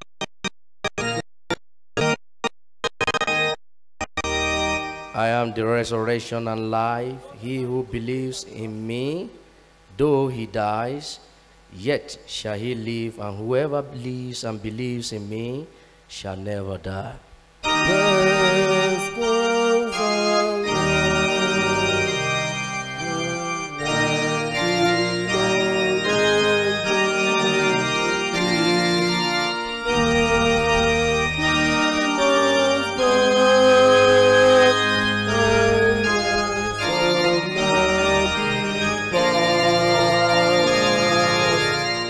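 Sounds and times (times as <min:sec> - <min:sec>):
organ playing sustained chords: 0:04.2 - 0:09.3, 0:17.6 - 0:42.0.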